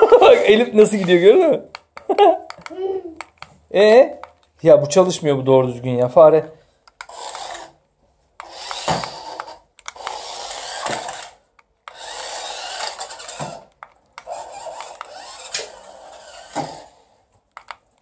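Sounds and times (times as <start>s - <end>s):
toy motor whirring: 6.9s - 7.8s, 8.4s - 17.8s.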